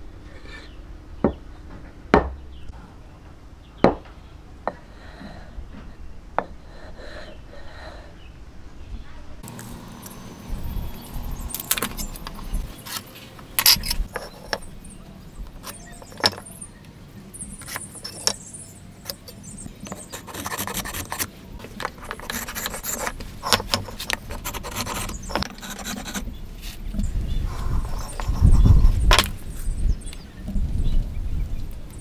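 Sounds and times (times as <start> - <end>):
rubbing and scraping: 11.6 - 14.7, 19.1 - 29.8
pen scratching lines: 19.9 - 26.4.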